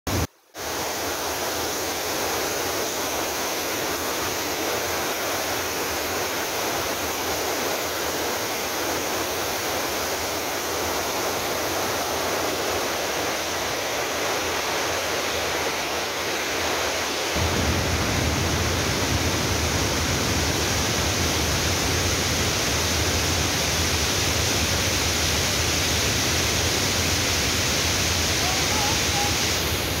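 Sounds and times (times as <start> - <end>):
white water rushing over boulders: 0.1 - 30.0.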